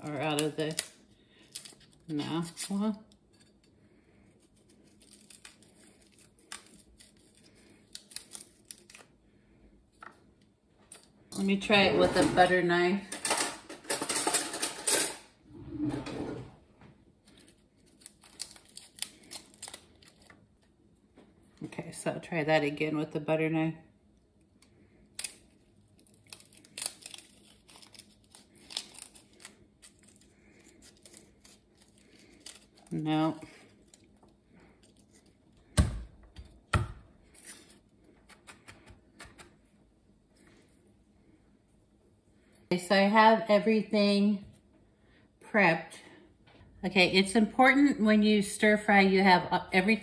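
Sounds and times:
garlic skin crackling and tearing: 0:00.1 - 0:03.3, 0:04.3 - 0:09.2, 0:17.2 - 0:20.8, 0:24.6 - 0:35.6.

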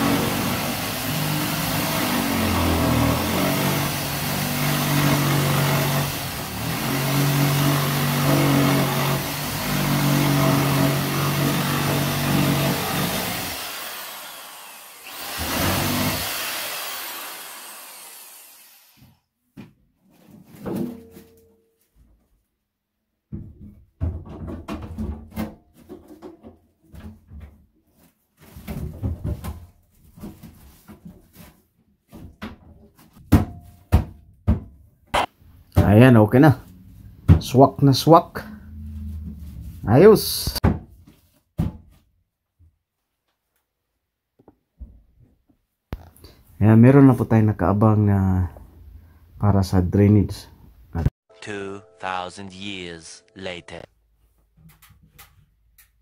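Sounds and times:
jigsaw cutting: 0:00.0 - 0:19.2
sink knocks and clunks: 0:23.3 - 0:27.6.

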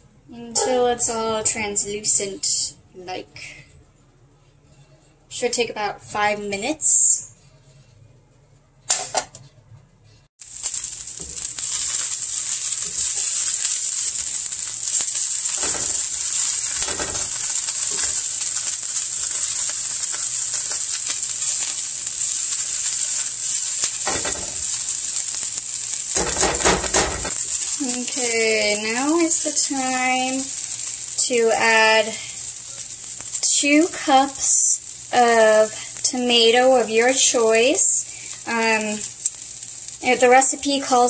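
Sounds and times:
onions sizzling in frying pan: 0:10.4 - 0:41.0.

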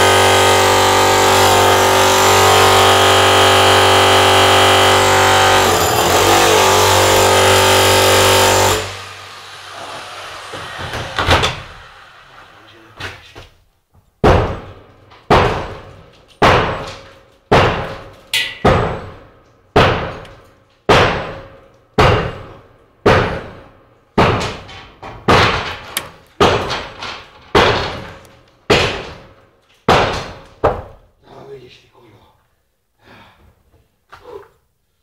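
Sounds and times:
loud ringing bangs: 0:00.0 - 0:09.3, 0:14.2 - 0:20.2.

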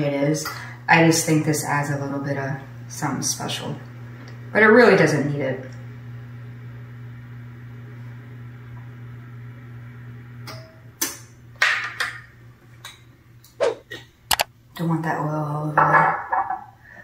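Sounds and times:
low mechanical hum: 0:00.0 - 0:17.0
kitchen items knocking and clinking: 0:15.8 - 0:16.7.

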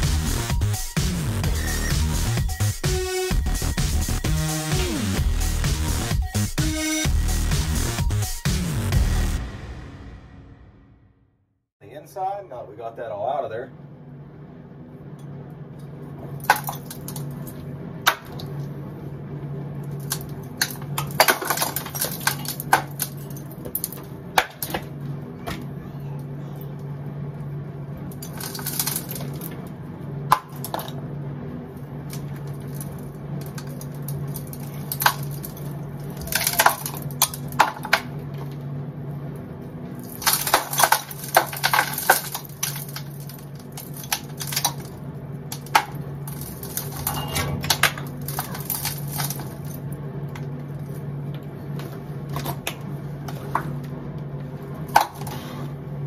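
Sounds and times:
steady low hum: 0:11.8 - 0:56.0.

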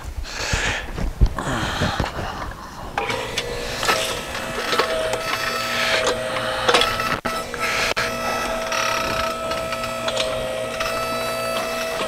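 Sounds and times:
electric motor and pump whining: 0:02.9 - 0:12.0.

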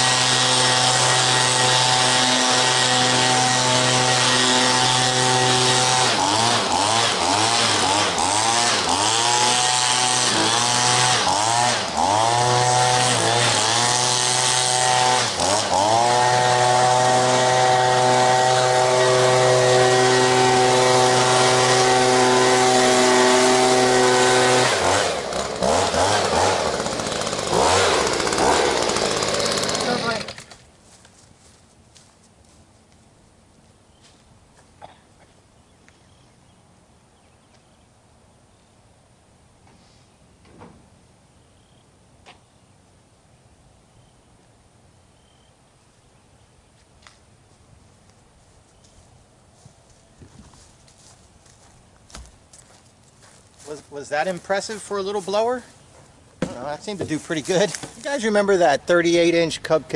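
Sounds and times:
leaf blower engine revving: 0:00.0 - 0:30.7, 0:53.2 - 0:55.8, 0:56.4 - 0:59.9.

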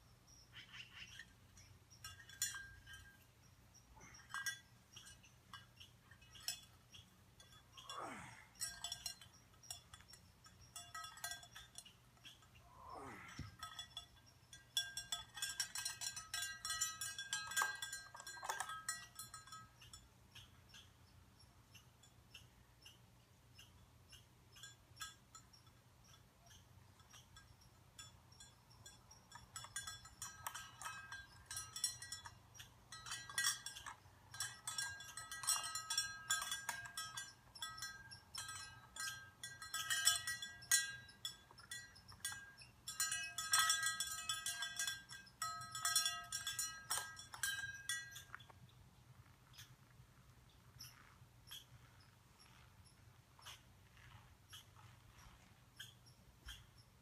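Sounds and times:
cowbell clanking: 0:00.8 - 0:03.3, 0:04.0 - 0:12.6, 0:13.2 - 0:21.0, 0:24.5 - 0:48.5.

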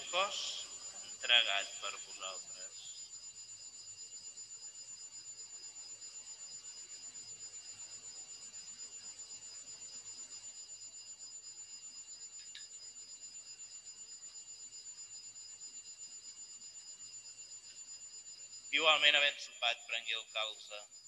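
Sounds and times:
faint click: 0:12.4 - 0:12.7.

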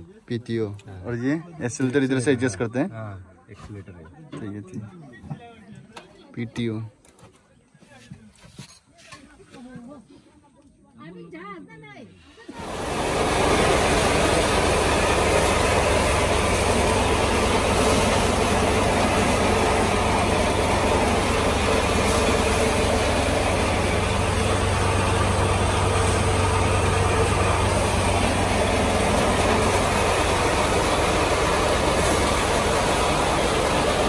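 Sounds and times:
thresher machine running: 0:12.5 - 0:34.0
low hum: 0:12.6 - 0:34.0.

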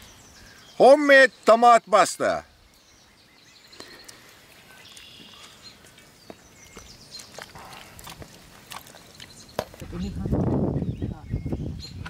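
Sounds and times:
faint chirps: 0:02.6 - 0:08.0.

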